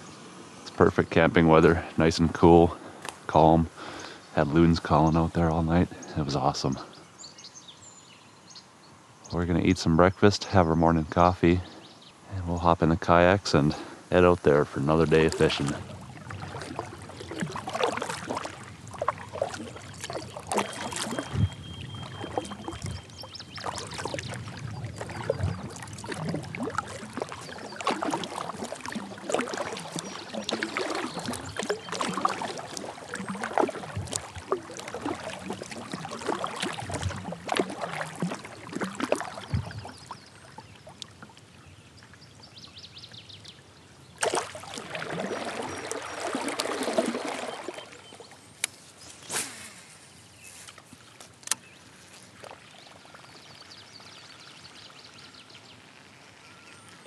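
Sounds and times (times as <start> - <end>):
kayak paddle strokes in water: 13.5 - 41.5, 44.2 - 57.0
water splashing and dripping: 13.7 - 41.5, 44.2 - 49.7, 50.7 - 57.0.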